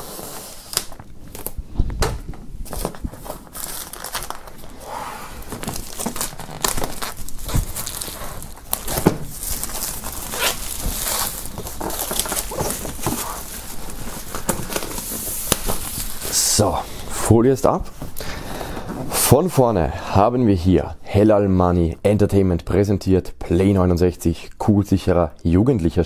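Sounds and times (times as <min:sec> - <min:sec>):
plastic film crinkling and tearing: 0:00.0 - 0:01.6, 0:02.6 - 0:16.9.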